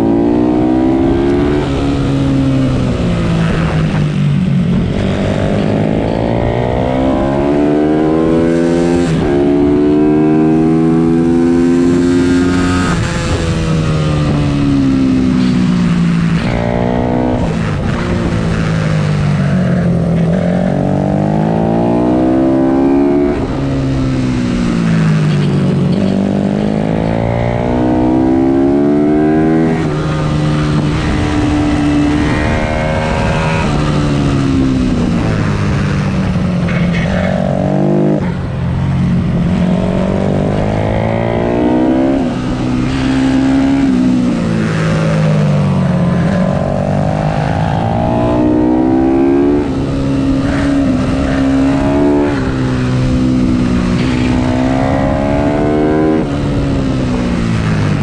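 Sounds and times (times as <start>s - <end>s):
motorbike engine revving: 0.0s - 58.0s.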